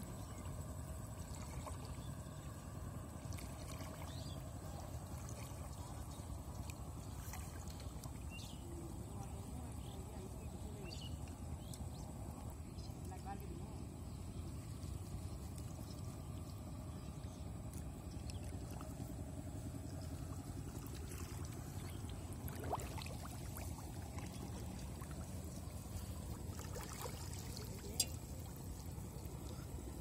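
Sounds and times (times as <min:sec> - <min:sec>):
water sloshing and dripping: 0:00.0 - 0:13.2, 0:14.5 - 0:30.0
low rumble: 0:00.0 - 0:30.0
water splash: 0:20.0 - 0:29.2.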